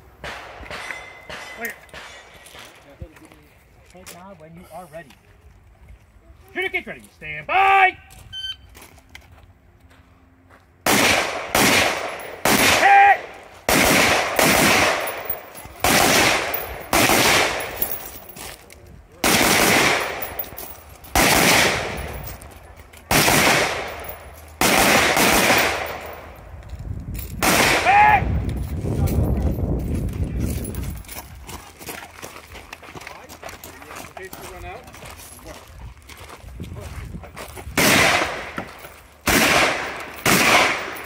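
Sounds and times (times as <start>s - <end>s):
faint timer beep: 8.3s - 8.7s
shotgun shots: 10.8s - 17.8s, 19.2s - 20.4s, 21.1s - 22.2s, 23.1s - 26.2s, 27.4s - 28.1s, 37.8s - 38.6s, 39.2s - 41.0s.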